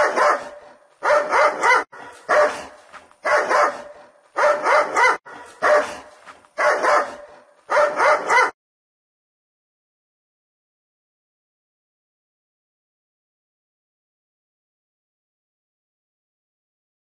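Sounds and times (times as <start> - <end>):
dog barking: 0.0 - 8.6.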